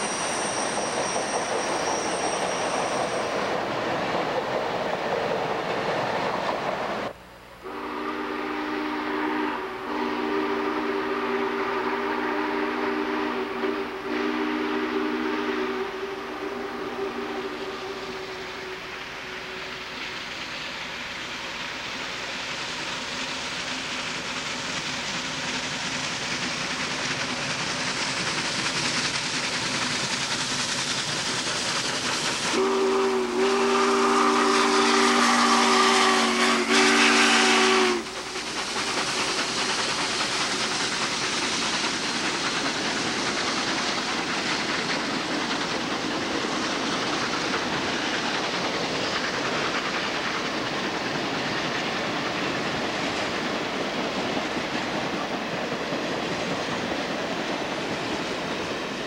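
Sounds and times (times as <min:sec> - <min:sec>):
steam locomotive passing: 0:00.0 - 0:59.0
steam whistle blast: 0:07.6 - 0:19.9, 0:32.5 - 0:38.2.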